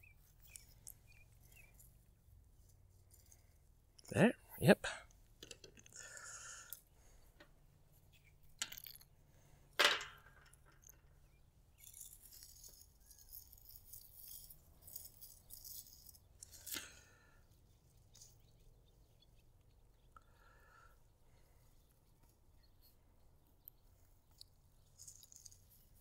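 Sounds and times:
plastic parts rattling and rustling: 5.4s - 6.0s, 8.1s - 17.0s, 24.3s - 26.0s.

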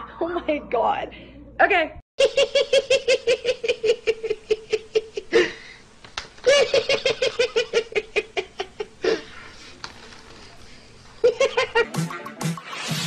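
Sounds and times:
person laughing hard: 2.2s - 5.7s, 6.4s - 9.4s.

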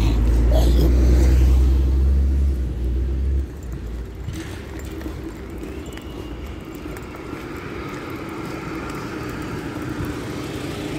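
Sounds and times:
distant road traffic rumble: 0.0s - 10.9s.

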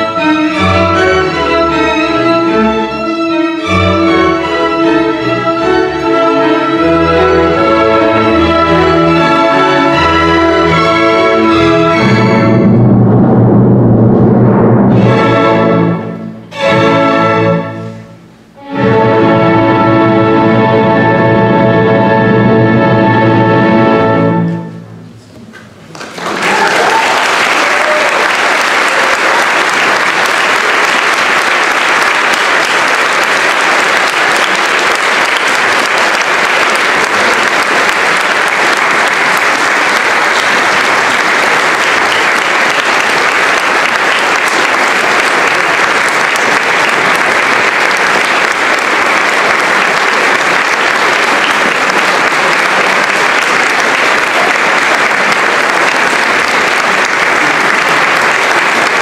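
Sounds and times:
large audience applauding: 25.8s - 59.0s.

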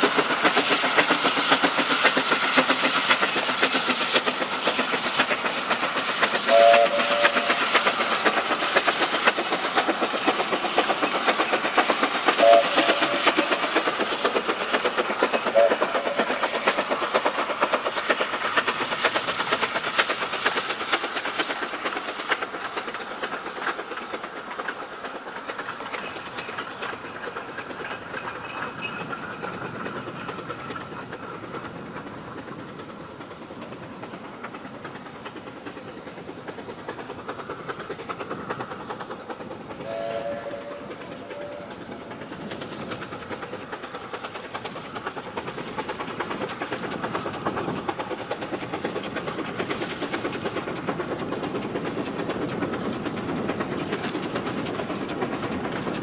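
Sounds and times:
steam train rumbling on rails: 0.0s - 56.0s
two-note train whistle: 6.5s - 7.4s, 12.4s - 13.3s, 15.6s - 15.9s, 39.8s - 41.7s.

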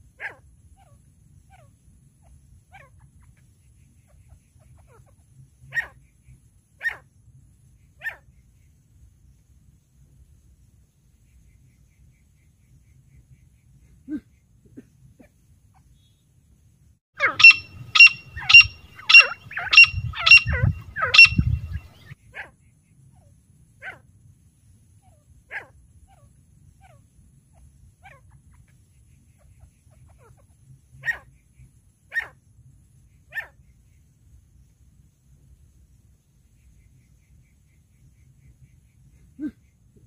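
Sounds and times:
francolin calling: 17.2s - 22.2s.

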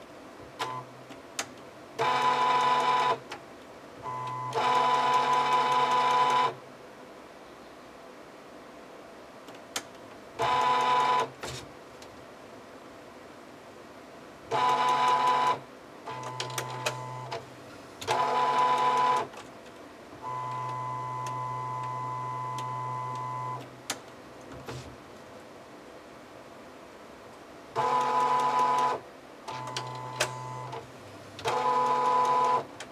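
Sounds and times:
printer carriage motor whirring: 2.0s - 3.2s, 14.5s - 17.4s, 18.0s - 19.4s, 27.8s - 30.8s, 31.4s - 32.9s.

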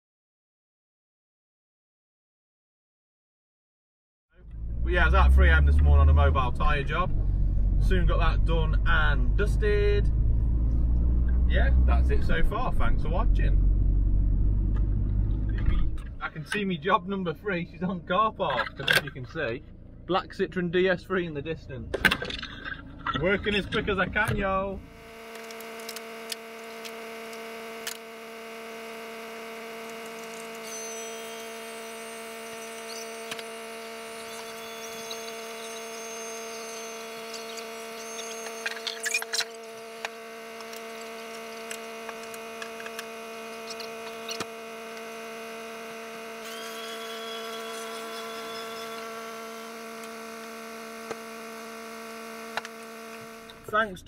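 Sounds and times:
high whine: 4.4s - 20.1s, 23.2s - 54.0s
hydraulic pump humming: 21.9s - 53.9s.

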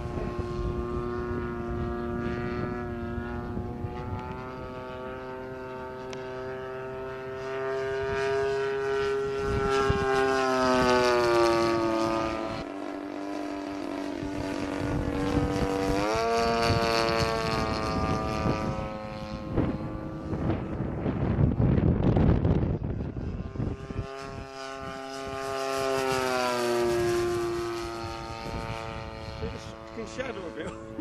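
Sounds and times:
model plane engine drone: 0.0s - 31.0s
low rumble: 14.0s - 31.0s.

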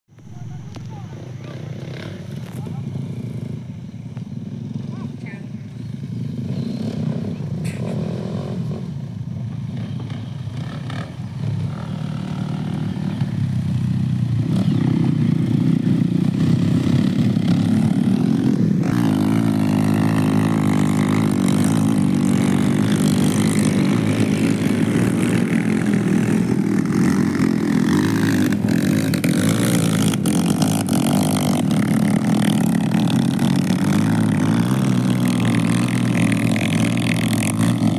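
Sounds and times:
off-road motorcycle engines revving: 0.1s - 37.9s.

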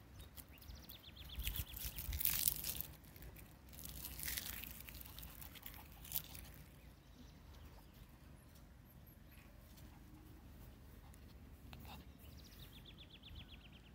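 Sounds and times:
wind rustling tree leaves: 0.0s - 6.6s.

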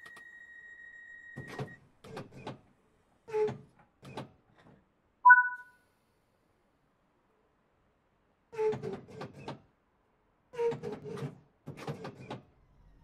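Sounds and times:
high warning tone: 5.3s - 5.6s
two-note signal tone: 5.3s - 5.6s.

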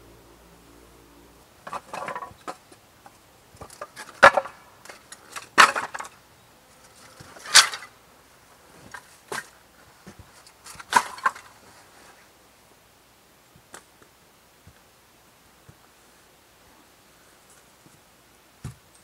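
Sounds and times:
firewood clattering on pile: 1.6s - 6.2s, 6.8s - 8.0s, 8.8s - 11.6s.

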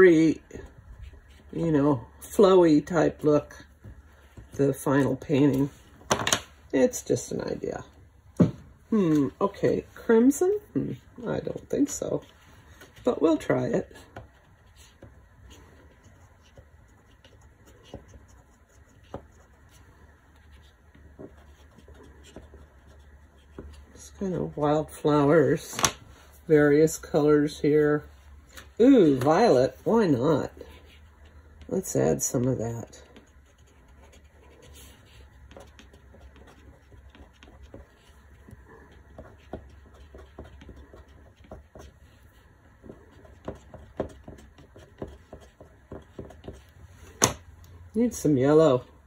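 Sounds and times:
crayon scratching on paper: 11.5s - 24.1s, 32.4s - 46.8s
crayon tapping: 42.8s - 47.4s.

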